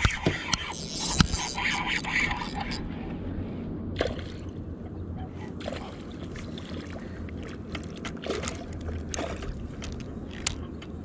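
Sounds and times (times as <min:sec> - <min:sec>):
steady low rumble: 0:00.0 - 0:11.0
water sloshing and splashing: 0:04.0 - 0:11.0.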